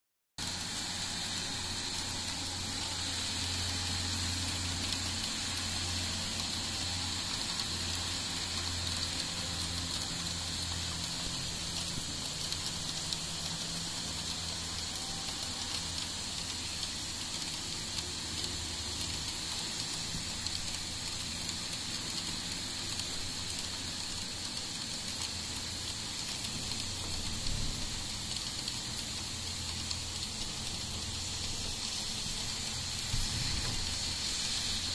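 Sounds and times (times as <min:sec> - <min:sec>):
heavy rain hissing: 0:00.4 - 0:34.9.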